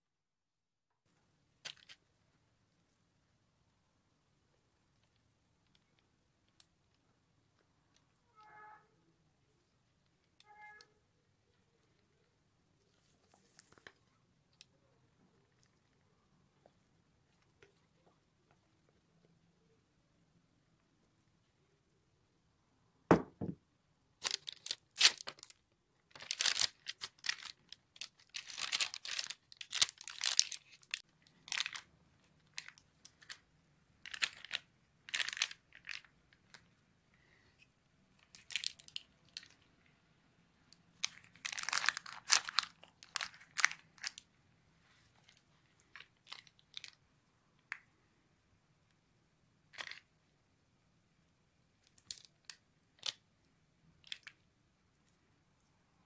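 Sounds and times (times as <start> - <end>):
paper crinkling: 12.8 - 14.7, 24.2 - 33.4, 34.0 - 36.7, 38.2 - 39.6, 41.0 - 44.2
low knock: 23.1 - 23.6.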